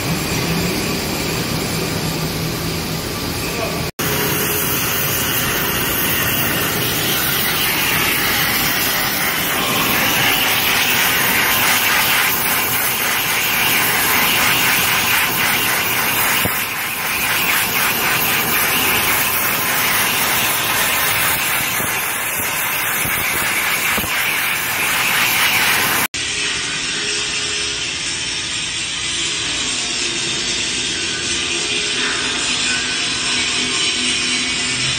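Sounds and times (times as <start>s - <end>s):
angle grinder on steel: 4.0s - 26.1s
gas torch hissing: 4.0s - 26.1s.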